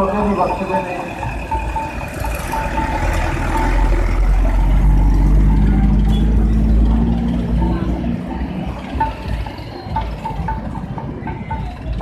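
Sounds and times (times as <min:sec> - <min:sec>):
truck engine passing: 0:00.0 - 0:12.0
motorcycle passing: 0:01.2 - 0:09.4.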